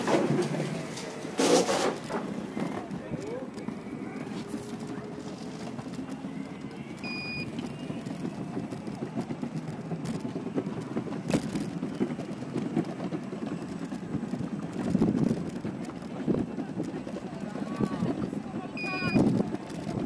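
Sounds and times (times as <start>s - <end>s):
skateboard wheels rolling on paving: 0.0s - 20.0s
wheels clicking over joints: 0.0s - 20.0s
short high beep: 7.0s - 7.5s.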